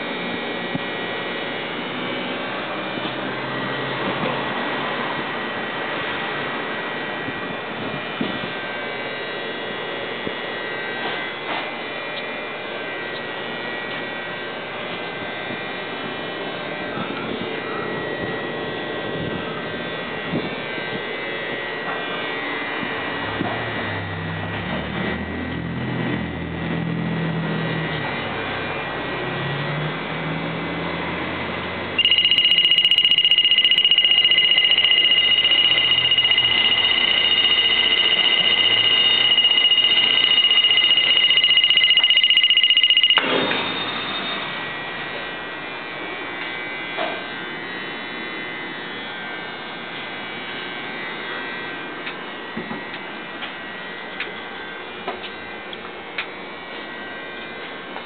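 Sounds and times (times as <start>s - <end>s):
high-pitched electronic buzzer: 32.0s - 44.5s.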